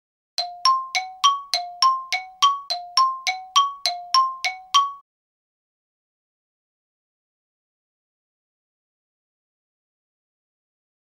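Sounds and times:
two-note bell-like chime: 0.4 - 5.0.

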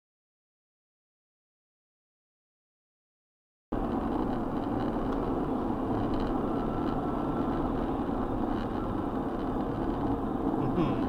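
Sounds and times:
car road and engine noise: 3.7 - 11.0.

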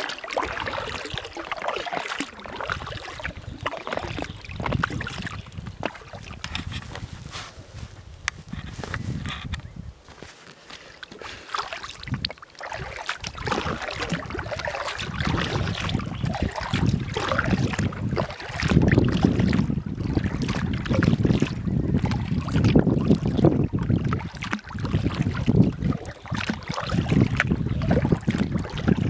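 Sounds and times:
water splashing against kayak hull: 0.0 - 9.6, 10.4 - 29.0
wind buffeting microphone: 0.4 - 1.4, 2.4 - 10.2, 11.9 - 29.0.

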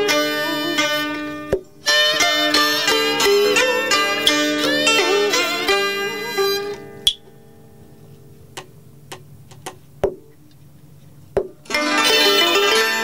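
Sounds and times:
two-string fiddle: 0.0 - 7.2, 11.7 - 13.0
isolated plucked notes and clicks: 0.0 - 7.4, 8.1 - 10.6
moon lute: 0.0 - 13.0
zither: 0.0 - 13.0.

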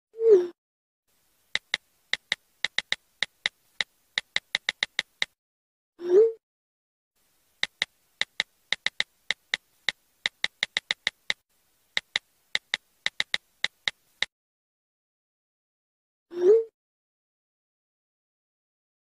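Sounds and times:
phone keyboard key clicks: 1.5 - 5.3, 7.6 - 11.4, 12.0 - 14.3.

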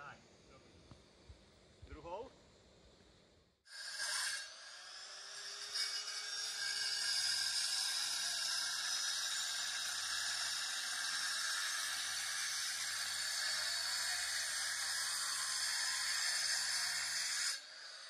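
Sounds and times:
steady high-pitched hiss: 0.0 - 3.6.

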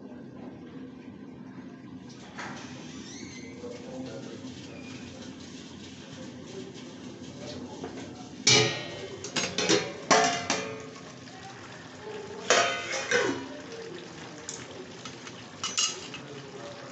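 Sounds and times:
curry simmering quietly: 0.0 - 16.9
metal utensils clanking on pan: 8.4 - 11.0, 12.4 - 13.5, 14.5 - 16.3.

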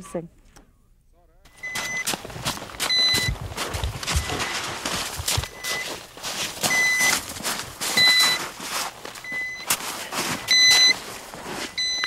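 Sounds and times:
short high beeps: 1.5 - 2.1, 2.9 - 3.4, 4.1 - 4.6, 5.4 - 5.9, 6.7 - 7.2, 8.0 - 8.4, 9.3 - 9.7, 10.5 - 11.0, 11.8 - 12.0
rough rustling noise: 1.8 - 12.0.

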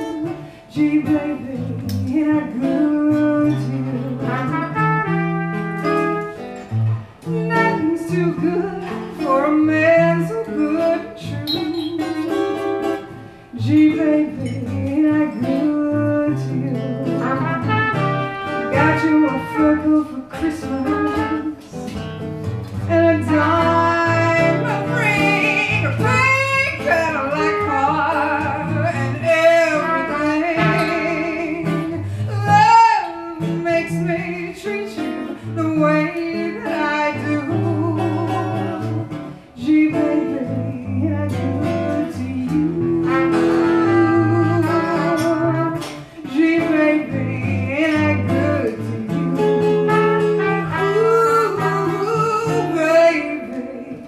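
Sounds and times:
electric guitar: 0.0 - 54.0
woman singing: 0.0 - 54.0
trumpet: 3.4 - 9.0, 11.2 - 13.1, 17.0 - 21.8, 22.8 - 34.2, 41.6 - 48.8, 49.4 - 53.4.

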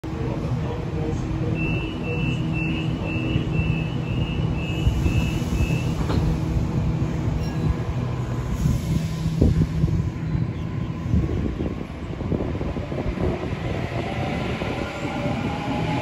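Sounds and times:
electric train humming: 0.1 - 16.0
train doors shutting knock: 4.1 - 6.5.

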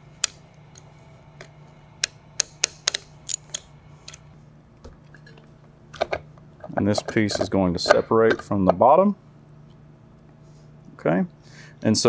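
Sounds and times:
metal bolts clicking and clinking: 2.4 - 4.2.

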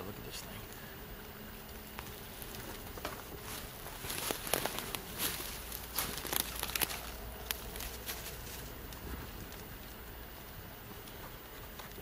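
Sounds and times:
twigs and leaves rustling and crackling: 0.4 - 12.0
twigs snapping: 1.7 - 9.9.

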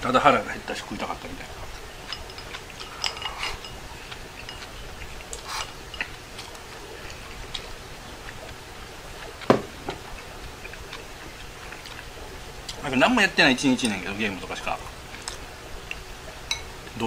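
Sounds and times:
mouth eating sounds: 1.4 - 12.8
chopsticks clinking on ceramic bowl: 2.0 - 3.8, 4.4 - 4.7, 16.5 - 16.7.

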